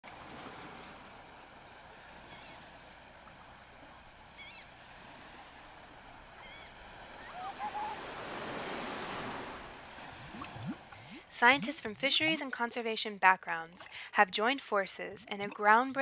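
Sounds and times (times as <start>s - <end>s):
waves washing: 0.0s - 12.6s.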